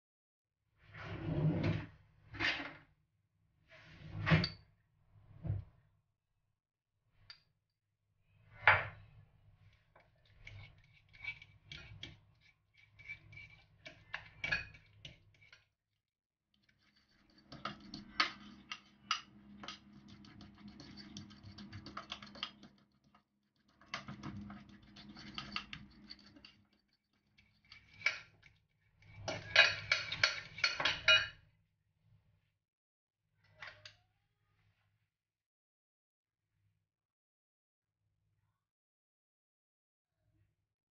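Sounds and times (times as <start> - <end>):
fork scraping and tapping glass bowl: 10.0 - 15.6, 16.6 - 31.4.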